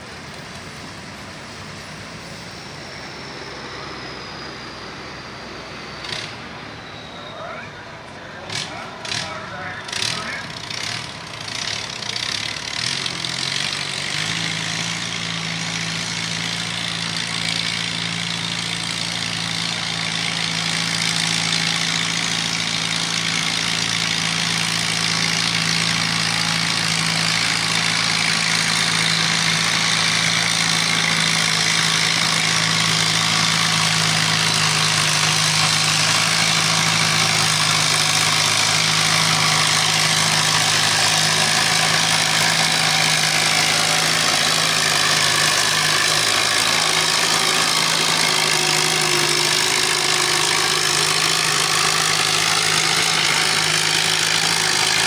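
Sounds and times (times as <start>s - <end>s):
tractor engine running under load: 0.0s - 55.0s.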